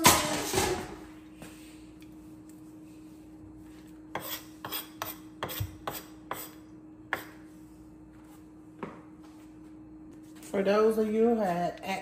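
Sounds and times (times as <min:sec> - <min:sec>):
spoon scraping on cutting board: 0:04.1 - 0:06.6.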